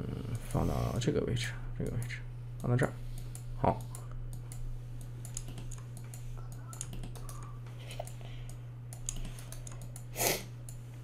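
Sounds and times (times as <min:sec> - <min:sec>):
low hum: 0:00.0 - 0:11.0
mouse and keyboard clicks: 0:03.2 - 0:08.2, 0:08.9 - 0:10.1.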